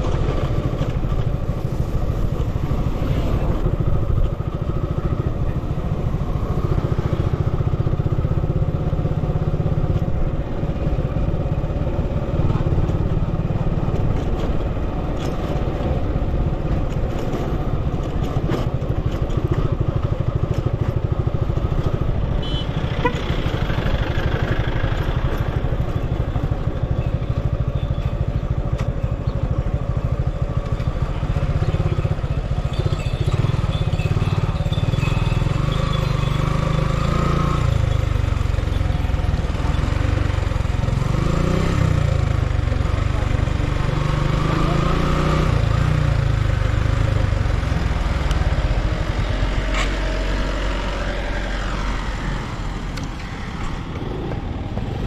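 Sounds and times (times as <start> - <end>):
vehicle engine and road noise: 0.0 - 55.0.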